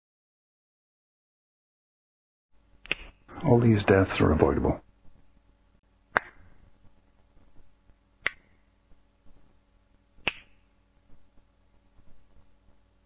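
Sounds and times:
finger snaps: 0:02.8 - 0:03.2, 0:06.1 - 0:06.5, 0:08.2 - 0:08.6, 0:10.2 - 0:10.7.

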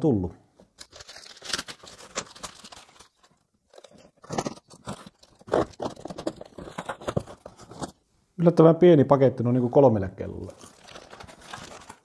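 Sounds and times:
plastic wrapping crinkling: 0:00.7 - 0:08.0, 0:10.4 - 0:12.0.

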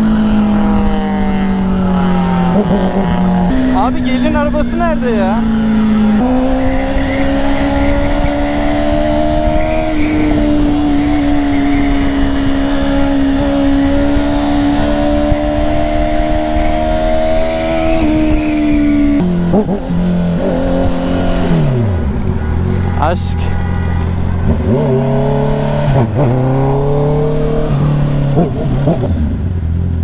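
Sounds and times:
motorcycle engine at high revs: 0:00.0 - 0:30.0.

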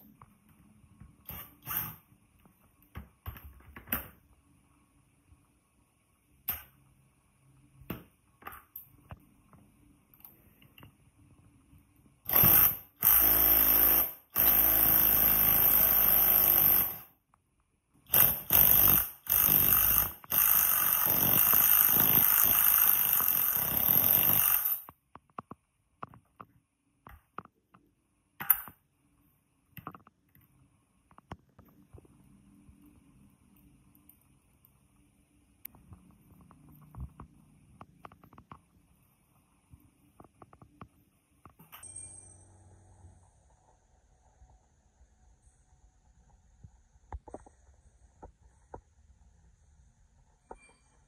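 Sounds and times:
cordless drill driving screw: 0:12.3 - 0:17.0, 0:18.1 - 0:24.9.

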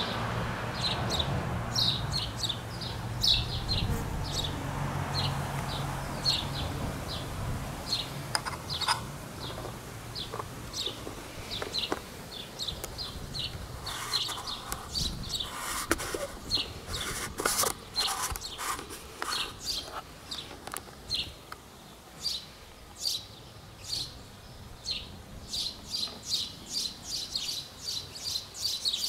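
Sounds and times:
small birds chirping: 0:00.8 - 0:29.0
fingers rustling on camera lens: 0:13.8 - 0:20.9.

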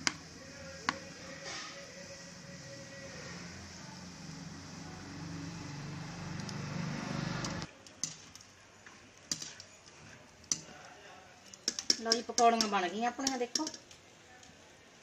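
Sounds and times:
fritters sizzling in hot oil: 0:00.0 - 0:15.0
metal spoon clinking on pan: 0:11.6 - 0:13.9.

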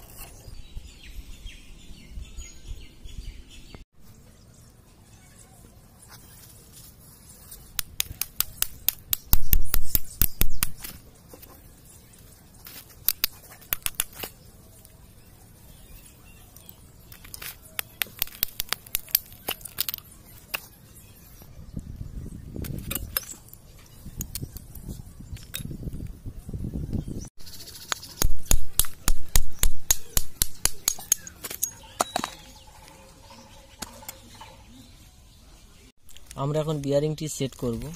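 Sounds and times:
metal tool clicks and taps: 0:07.8 - 0:10.9, 0:13.1 - 0:14.3, 0:27.9 - 0:32.4.

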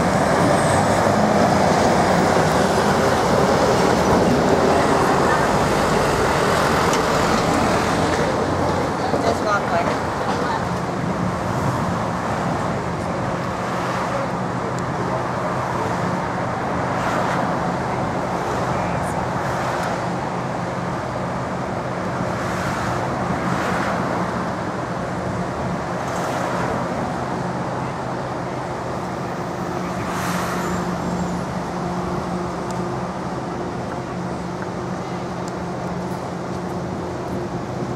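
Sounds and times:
bus passing: 0:00.0 - 0:37.9
cars passing: 0:00.0 - 0:37.9.

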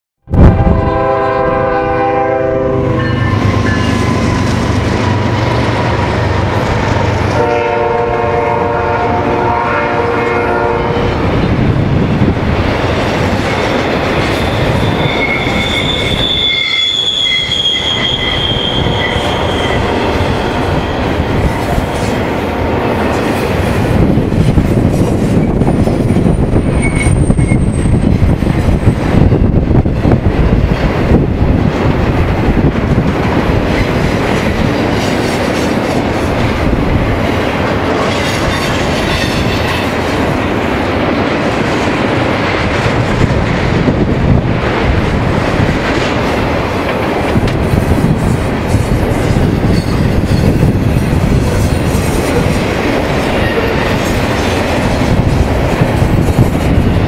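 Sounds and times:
train horn chord: 0:00.3 - 0:03.9, 0:07.3 - 0:11.1
wheel squeal: 0:14.3 - 0:21.1, 0:26.7 - 0:28.0, 0:49.7 - 0:50.6.

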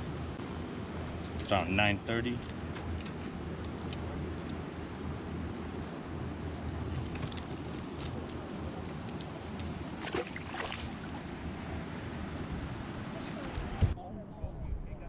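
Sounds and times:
lure splashing into water: 0:10.0 - 0:11.3
water lapping against kayak hull: 0:10.0 - 0:11.3.

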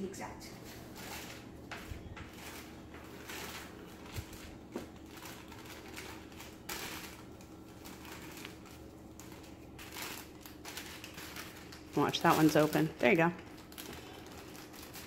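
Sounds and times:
packet rustling and crinkling: 0:00.6 - 0:15.0.

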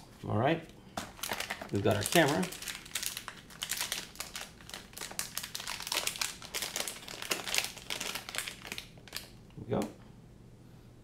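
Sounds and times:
plastic bag crinkling: 0:01.0 - 0:09.4.

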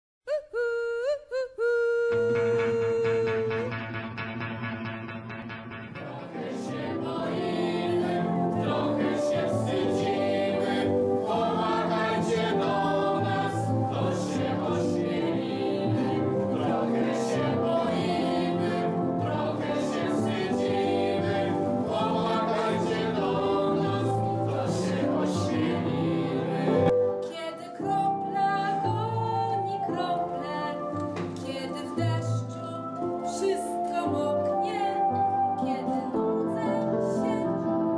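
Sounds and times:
group singing with accompaniment: 0:05.9 - 0:27.2.

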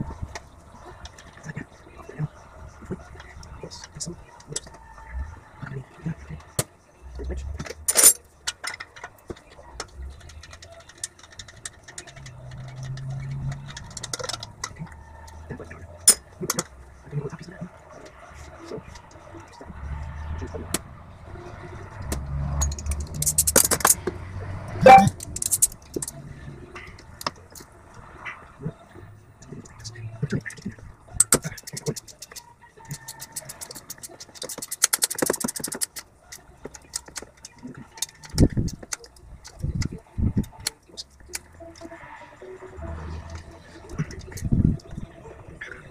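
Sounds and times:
metallic clicking and scraping of tools: 0:06.4 - 0:19.6, 0:21.9 - 0:24.2, 0:24.8 - 0:28.4, 0:30.4 - 0:41.9
hand tools clinking on metal: 0:07.5 - 0:15.4, 0:16.0 - 0:16.8, 0:22.5 - 0:24.0, 0:24.8 - 0:26.2.

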